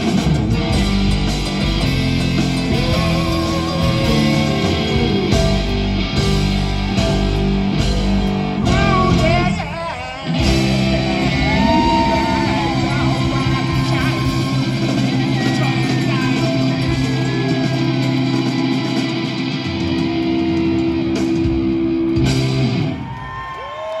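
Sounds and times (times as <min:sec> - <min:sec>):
live rock band playing: 0:00.0 - 0:23.5.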